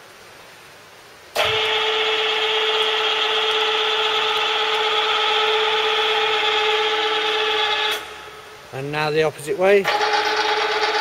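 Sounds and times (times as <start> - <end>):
machine whine: 1.4 - 8.5, 9.8 - 11.0.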